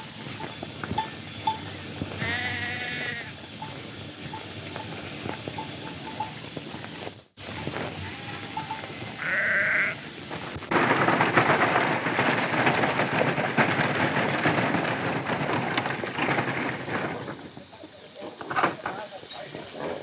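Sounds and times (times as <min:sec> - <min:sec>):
galloping hooves: 0:00.0 - 0:20.0
wagon wheels rattling: 0:00.0 - 0:20.0
sheep bleating: 0:02.2 - 0:03.3, 0:08.0 - 0:10.0.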